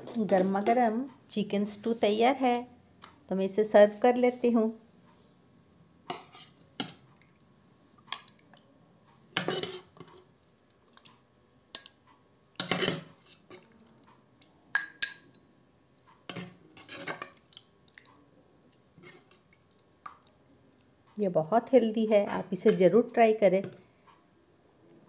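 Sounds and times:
ladle scraping in a pot: 0:06.1 - 0:07.0, 0:09.4 - 0:10.3, 0:12.6 - 0:13.7, 0:16.3 - 0:17.4, 0:18.9 - 0:19.5
ladle clinking on ceramic bowl: 0:14.8 - 0:15.3.

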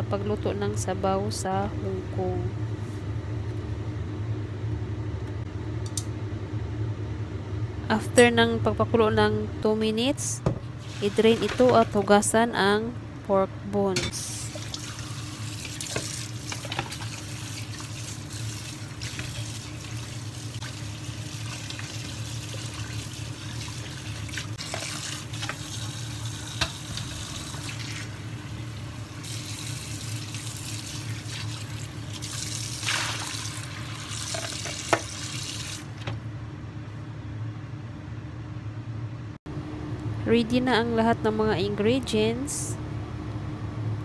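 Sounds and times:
tap water running into sink: 0:14.5 - 0:28.1, 0:29.2 - 0:35.9.

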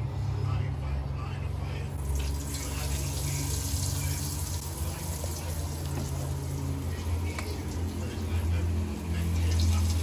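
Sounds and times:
steady low hum: 0:00.0 - 0:10.0
fish fillets sizzling in oil: 0:02.0 - 0:08.0.

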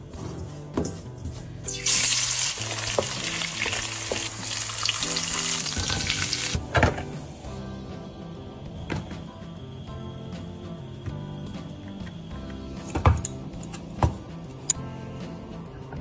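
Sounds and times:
food sizzling in hot oil: 0:01.7 - 0:06.6.

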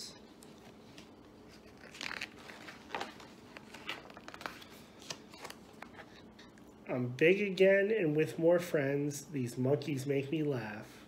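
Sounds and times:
book pages rustling: 0:00.2 - 0:06.6.

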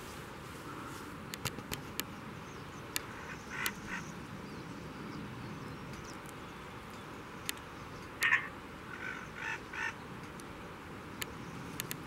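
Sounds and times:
outdoor background hiss: 0:00.0 - 0:12.0
harsh animal calls: 0:08.2 - 0:10.0
sharp clicks: 0:11.2 - 0:12.0.

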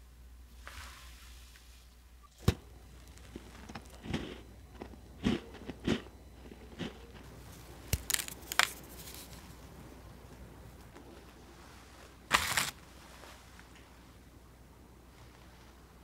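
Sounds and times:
crunching shortbread: 0:02.8 - 0:09.8, 0:12.1 - 0:12.9
shortbread snapping: 0:07.8 - 0:09.3, 0:12.3 - 0:12.8.

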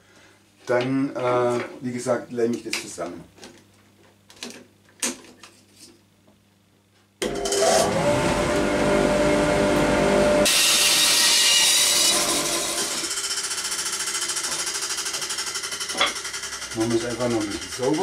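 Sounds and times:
band saw running: 0:07.2 - 0:18.0
saw blade ripping wood: 0:10.4 - 0:13.2.

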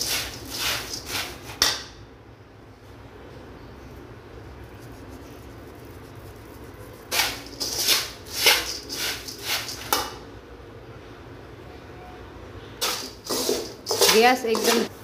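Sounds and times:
spoon stirring puffed rice in pan: 0:00.0 - 0:01.8, 0:04.8 - 0:10.2, 0:12.8 - 0:15.0
room hum: 0:00.0 - 0:15.0.

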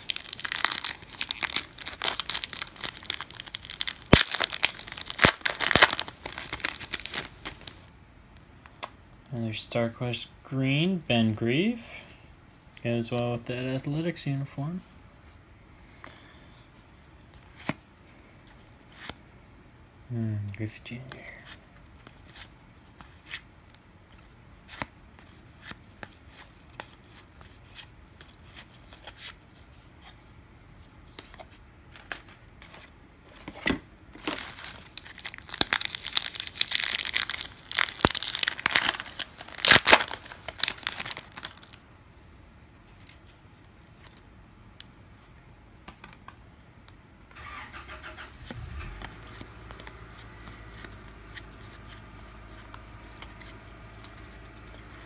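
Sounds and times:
wrapper crinkling and tearing: 0:00.0 - 0:07.8, 0:34.2 - 0:41.8
low steady hum: 0:00.0 - 0:55.0.

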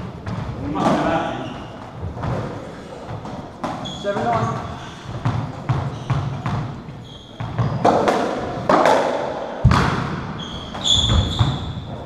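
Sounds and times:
ball smacking echoing walls: 0:00.0 - 0:12.0
shoes squeaking on wooden floor: 0:00.2 - 0:08.1, 0:10.4 - 0:12.0.

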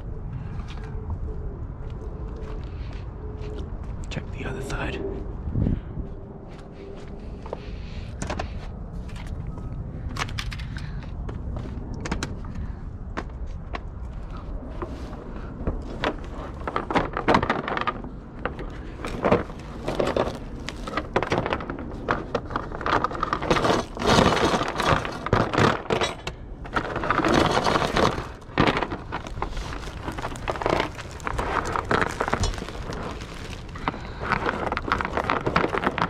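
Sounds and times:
plastic bags rustling: 0:15.9 - 0:26.1, 0:26.7 - 0:36.0.

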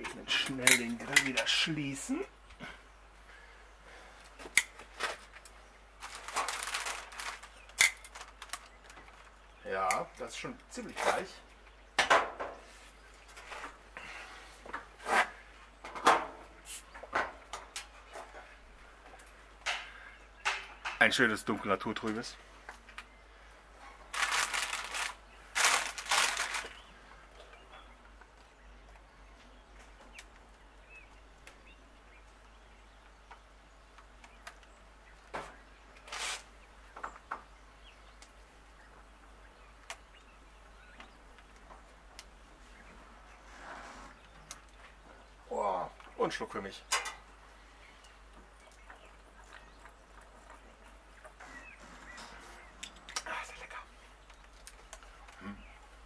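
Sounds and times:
faint birdsong: 0:00.0 - 0:56.0
objects rustling and knocking: 0:04.3 - 0:09.4, 0:12.0 - 0:21.2, 0:23.8 - 0:26.8, 0:48.3 - 0:53.2
baking paper rustling: 0:06.0 - 0:09.3, 0:24.0 - 0:26.8, 0:36.0 - 0:36.5.

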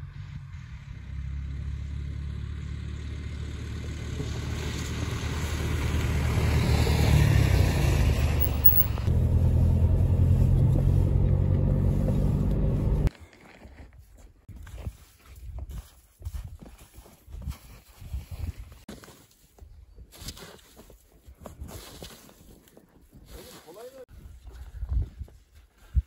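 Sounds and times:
low vehicle engine drone: 0:00.0 - 0:13.1
car passing on snow: 0:04.0 - 0:08.4.

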